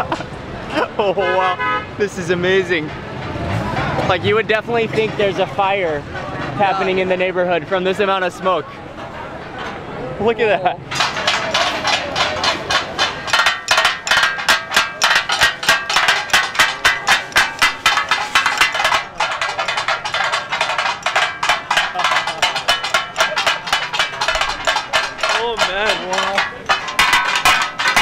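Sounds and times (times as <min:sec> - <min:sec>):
metal spatulas clanking on griddles: 0:10.9 - 0:28.0.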